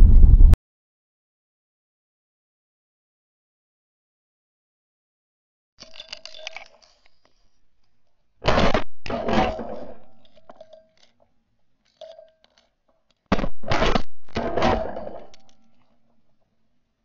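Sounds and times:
shotgun shots: 8.4 - 9.9, 13.3 - 15.0.

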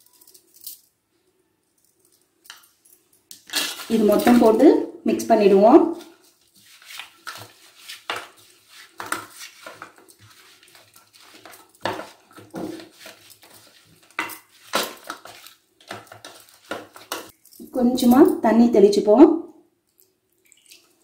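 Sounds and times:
soft rubbing: 6.0 - 15.6.

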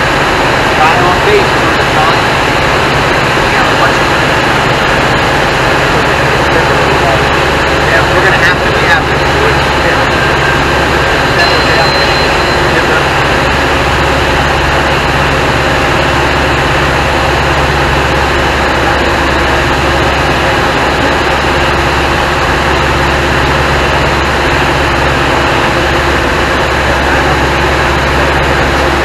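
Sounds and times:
airflow rush: 0.0 - 29.0
propeller airplane engine drone: 0.0 - 29.0.

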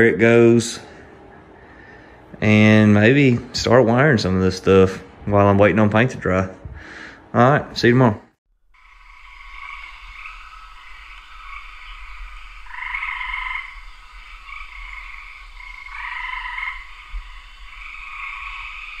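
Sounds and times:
chorus of frogs calling: 8.8 - 19.0.

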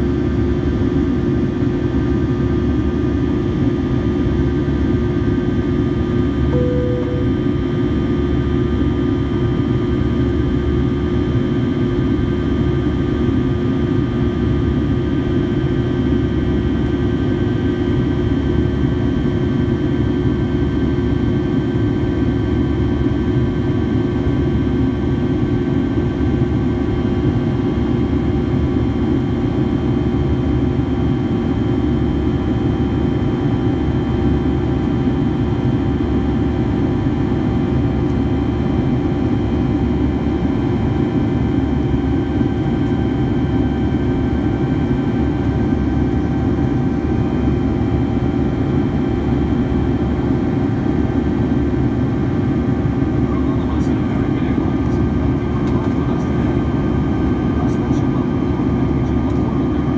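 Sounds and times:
faint steady whine: 6.4 - 8.0
jet engine and airflow rush: 52.3 - 59.9.

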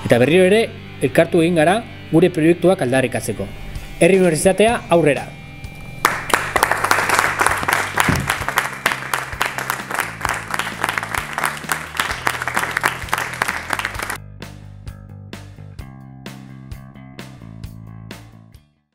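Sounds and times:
background music: 0.0 - 18.7
people clapping: 6.0 - 14.2.

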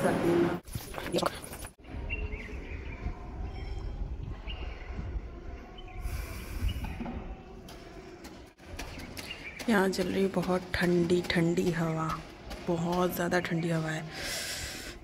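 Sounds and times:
wind buffeting microphone: 1.8 - 7.7.

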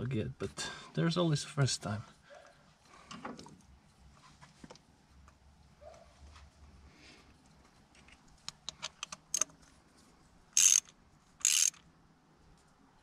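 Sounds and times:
ratchet wrench clicking: 10.6 - 11.8.

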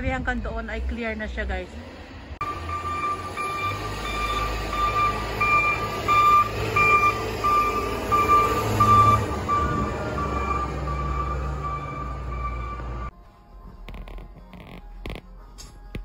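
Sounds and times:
diesel engine rumble: 0.0 - 16.0
backup alarm beeping: 2.4 - 13.1.

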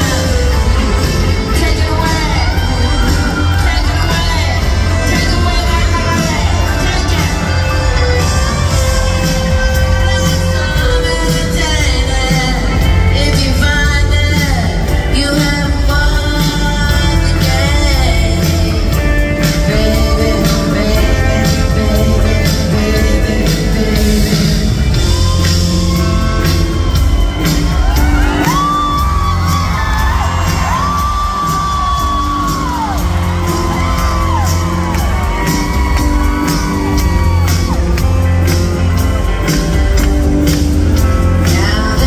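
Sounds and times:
crowd whooping: 0.0 - 10.8, 25.0 - 41.4
drum beat: 0.0 - 15.0, 23.8 - 42.0
woman singing lead vocal: 0.0 - 25.7, 41.2 - 42.0
heavy bass: 0.0 - 42.0
live rock band: 0.0 - 42.0.

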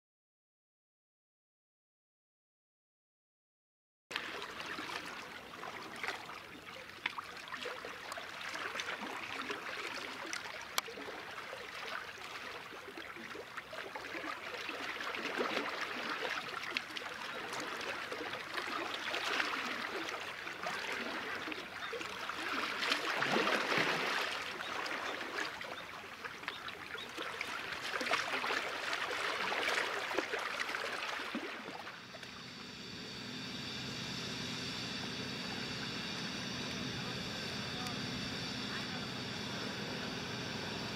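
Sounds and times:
small waves lapping: 4.1 - 40.9
steady multi-tone hum: 28.6 - 40.9.

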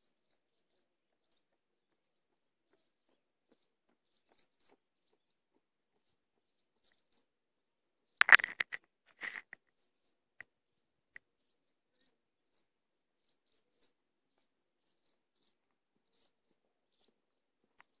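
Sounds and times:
sharp click: 8.2 - 9.6
swallows twittering: 11.4 - 17.2.

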